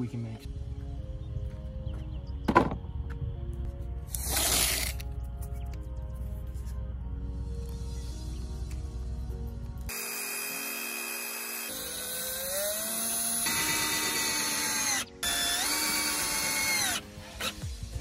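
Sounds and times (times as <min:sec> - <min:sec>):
cordless drill whining: 0:09.9 - 0:17.6.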